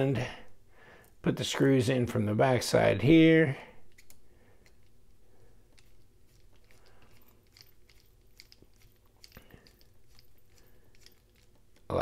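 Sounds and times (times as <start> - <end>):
screwdriver clicks: 5.8 - 11.9.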